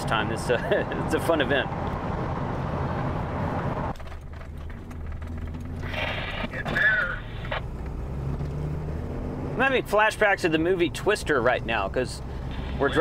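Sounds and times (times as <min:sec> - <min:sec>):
engine and road drone: 0:00.0 - 0:13.0
radio receiver hiss: 0:05.8 - 0:07.7
radio transmission burst: 0:12.5 - 0:13.0.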